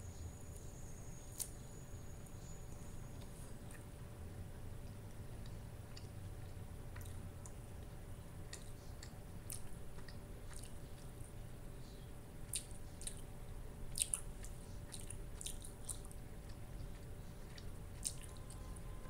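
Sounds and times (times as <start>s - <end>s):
person chewing with wet smacks: 4.8s - 19.0s.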